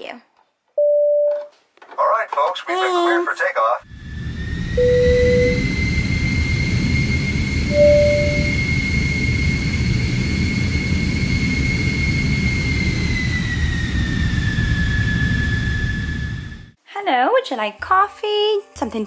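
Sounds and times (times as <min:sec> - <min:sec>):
short beep: 0:00.8 - 0:01.5, 0:04.8 - 0:05.7, 0:07.7 - 0:08.6
jet engine whine and rumble: 0:03.8 - 0:16.8.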